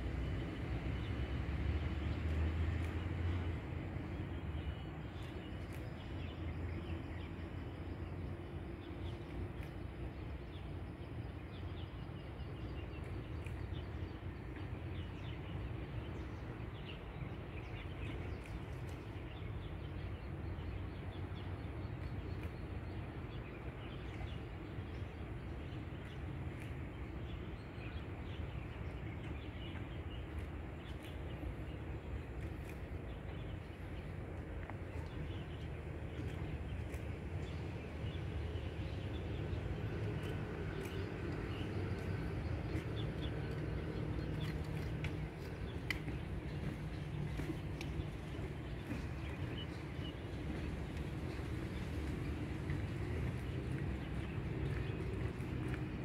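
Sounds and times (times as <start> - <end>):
steady low rumble: 0.0 - 56.0
small birds chirping: 22.0 - 56.0.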